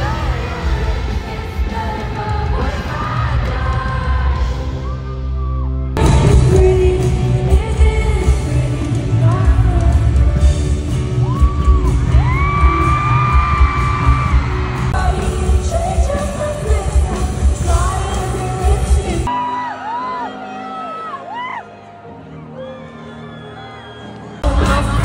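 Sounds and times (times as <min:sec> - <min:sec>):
band playing with heavy bass: 0:06.0 - 0:19.4, 0:24.4 - 0:25.0
crowd yelling along: 0:19.3 - 0:24.5.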